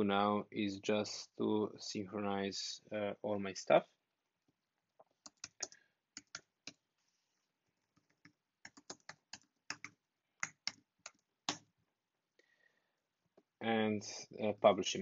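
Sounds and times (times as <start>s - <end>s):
keyboard typing: 5.0s - 6.8s, 7.9s - 11.6s.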